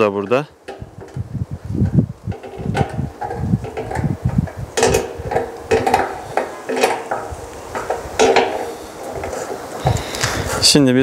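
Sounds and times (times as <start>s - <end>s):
metal parts clanking: 2.3s - 10.2s.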